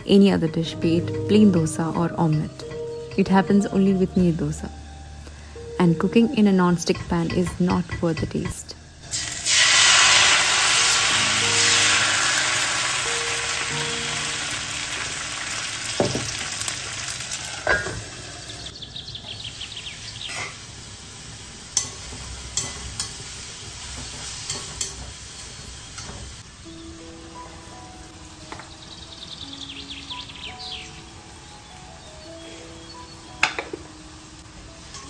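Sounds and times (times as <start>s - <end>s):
batter sizzling on hot pan: 9.0s - 18.7s, 19.6s - 26.5s.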